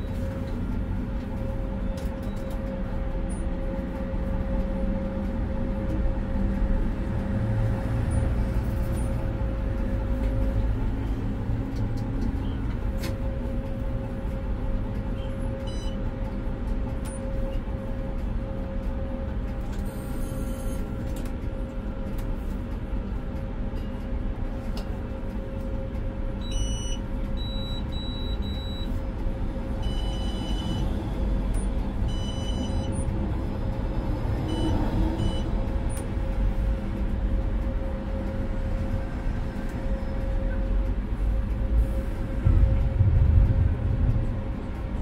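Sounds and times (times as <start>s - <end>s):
tram rumble: 0.0s - 45.0s
steady hum: 36.2s - 45.0s.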